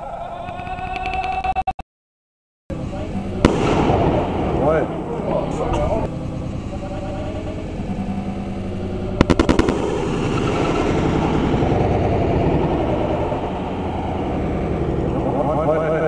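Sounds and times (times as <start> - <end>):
steady background noise: 2.7 - 16.0
fireworks bangs: 3.0 - 6.1, 9.2 - 15.1.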